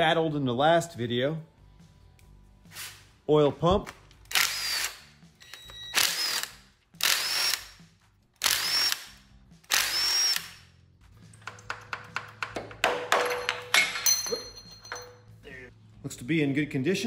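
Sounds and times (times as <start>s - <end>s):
power drill whining: 4.3s - 7.8s, 8.4s - 9.1s, 9.7s - 10.6s
metallic clicks and clinks: 13.3s - 15.3s.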